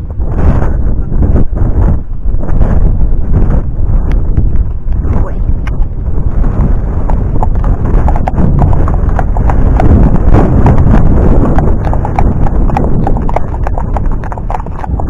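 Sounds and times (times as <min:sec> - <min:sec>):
horse hooves clip-clopping on road: 0:05.6 - 0:15.0.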